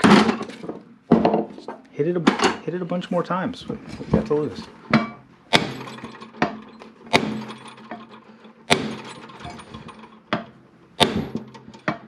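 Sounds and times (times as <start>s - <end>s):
hammer striking metal: 5.0s - 7.8s, 8.7s - 9.3s, 10.4s - 12.0s.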